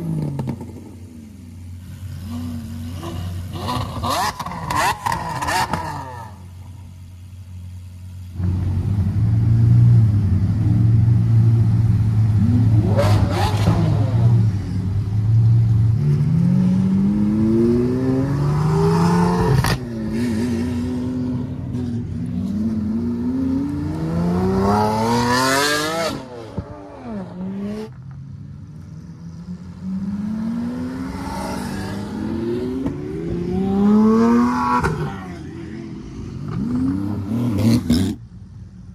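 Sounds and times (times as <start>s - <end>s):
sports cars accelerating: 8.4s - 38.3s.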